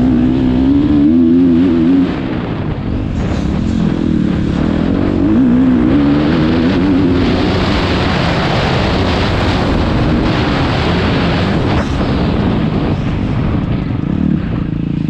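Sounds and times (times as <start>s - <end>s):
motorbike engine running: 0.0s - 15.0s
wind noise on microphone: 0.0s - 15.0s.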